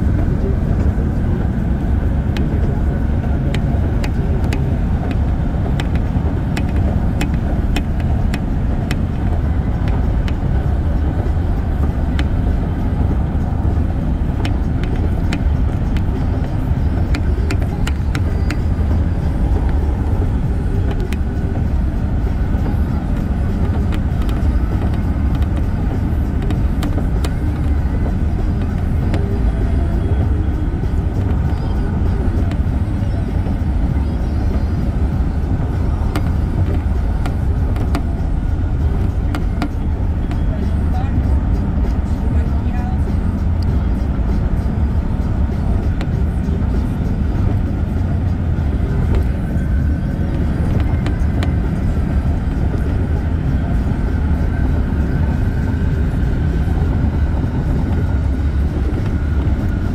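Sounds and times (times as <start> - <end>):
tyre and wind noise: 0.0 - 59.9.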